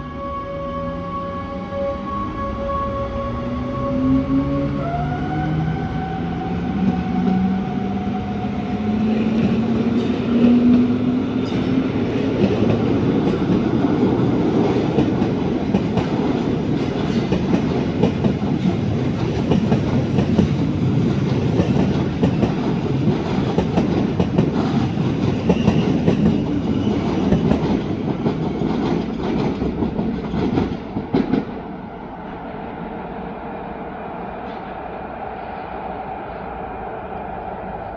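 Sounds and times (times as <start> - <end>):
train wheels clattering over rail joints: 14.9 - 31.6
electric locomotive drive whine: 31.8 - 37.9.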